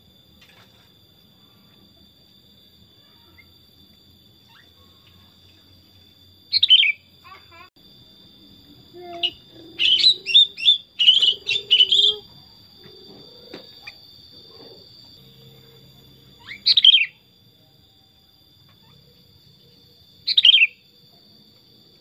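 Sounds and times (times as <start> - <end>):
bird chirping song: 6.5 - 7.1, 9.0 - 17.3, 18.7 - 20.9.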